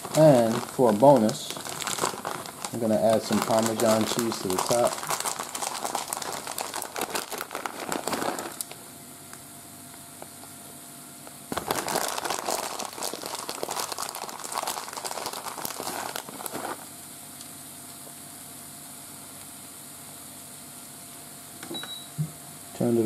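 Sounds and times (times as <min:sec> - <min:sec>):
plastic bag crinkling: 0:00.0 - 0:08.8, 0:11.5 - 0:16.9
faint steady hum: 0:00.0 - 0:23.0.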